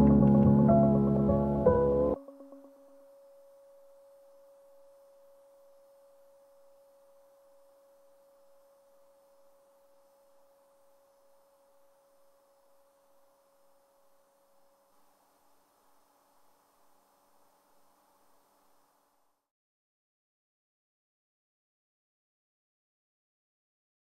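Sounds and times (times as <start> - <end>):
lower tone: 0.0 - 14.8
faint steady pure tone: 0.0 - 19.5.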